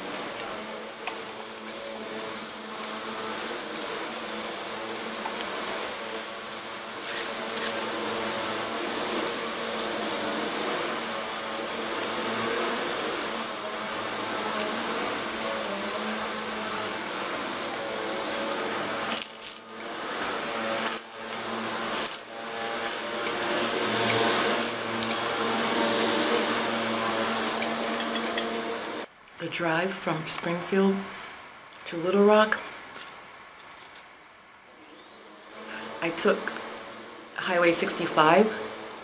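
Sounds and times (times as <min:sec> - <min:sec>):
machine whirring with high whine: 0:00.0 - 0:29.1, 0:34.8 - 0:39.0.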